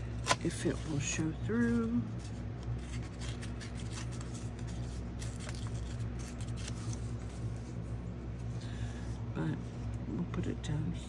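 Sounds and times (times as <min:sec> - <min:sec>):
steady low hum: 0:00.0 - 0:11.0
paper rustling: 0:00.2 - 0:07.8.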